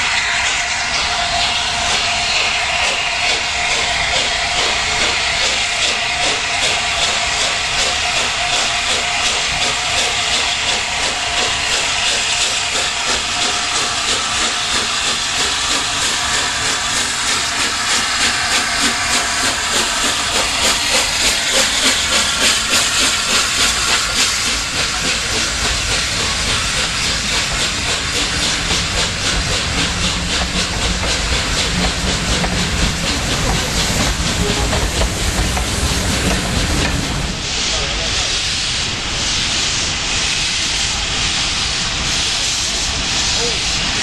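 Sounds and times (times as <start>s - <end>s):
steam locomotive hissing: 0.0s - 44.0s
rhythmic exhaust beats: 10.7s - 38.3s.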